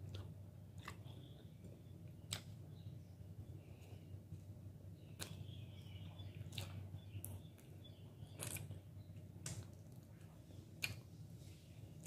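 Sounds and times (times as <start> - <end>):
wet chewing and mouth sounds: 0.0 - 2.6, 5.0 - 11.2
steady low hum: 0.0 - 12.0.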